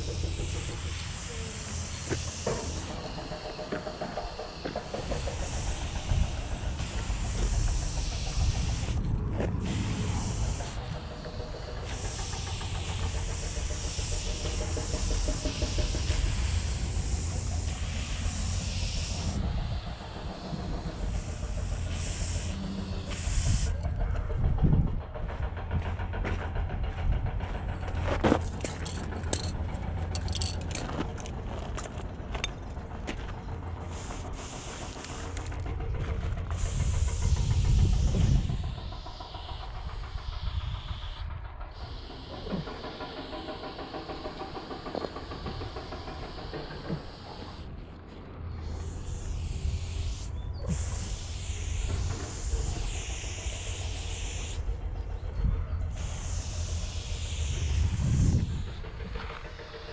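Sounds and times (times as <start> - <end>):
spray paint hissing: 0.0 - 24.0, 33.7 - 47.7, 48.5 - 54.8, 55.8 - 59.9
low rumble: 0.0 - 59.9.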